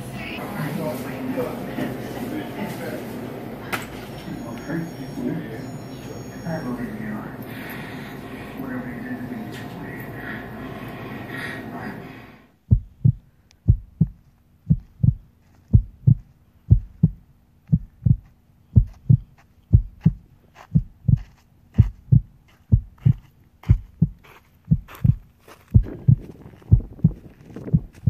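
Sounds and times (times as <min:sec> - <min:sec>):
faint steady hum: 0:00.0 - 0:28.0
noisy background: 0:00.0 - 0:28.0
heartbeat thumps: 0:12.6 - 0:28.0.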